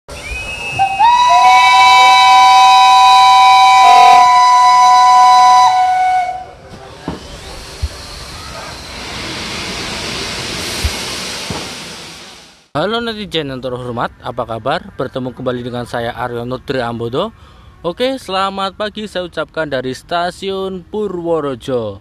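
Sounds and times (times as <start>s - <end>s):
two-note train whistle: 0.1s - 6.6s
steady hiss: 6.8s - 12.7s.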